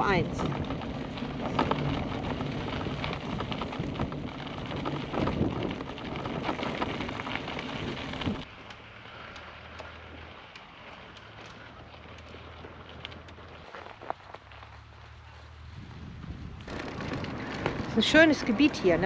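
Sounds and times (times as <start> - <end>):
wind buffeting: 0.0 - 8.5, 15.5 - 19.0
bicycles rolling: 0.0 - 19.0
clicks and rattles: 16.6 - 18.8.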